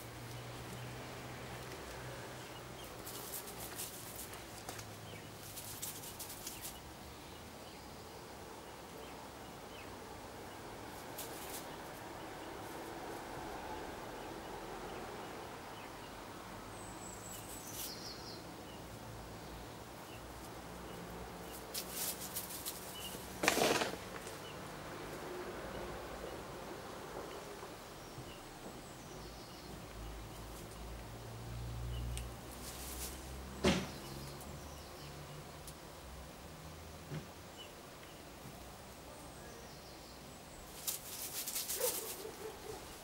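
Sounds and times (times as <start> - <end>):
outdoor background hum: 0.0 - 43.0
loud rustle or scrape: 21.7 - 24.4, 32.6 - 33.4, 40.7 - 42.3.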